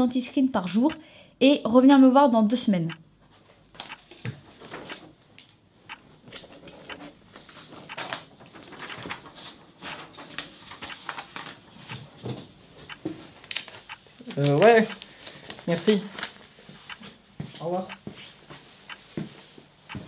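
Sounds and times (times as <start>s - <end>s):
paper and pen rustles and taps: 3.4s - 5.6s, 6.2s - 16.6s.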